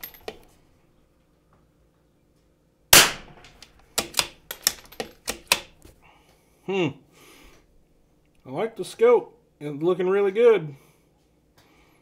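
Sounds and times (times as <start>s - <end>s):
rifle shot: 2.9s - 4.3s
rifle bolt clicking: 3.5s - 5.7s.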